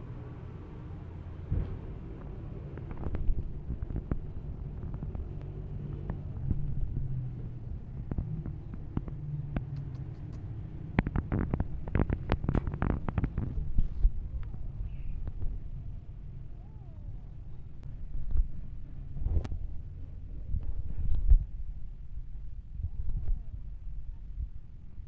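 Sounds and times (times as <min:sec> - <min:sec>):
sharp clicks and knocks: 0:08.0 - 0:14.6.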